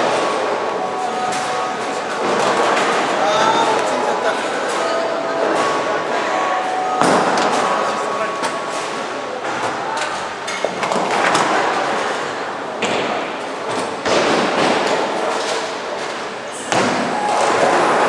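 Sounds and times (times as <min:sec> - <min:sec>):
bowling balls rolling: 0:08.5 - 0:18.0.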